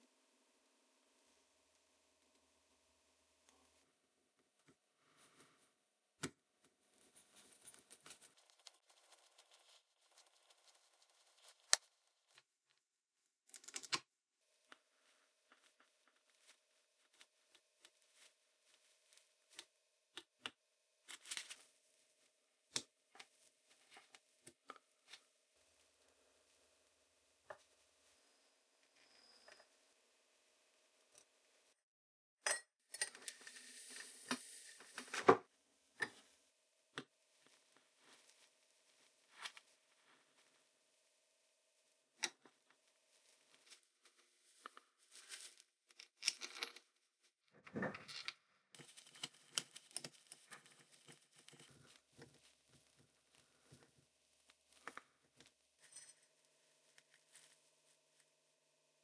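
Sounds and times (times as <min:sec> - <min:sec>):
rustling of gloved hands: 0:06.9 - 0:12.5.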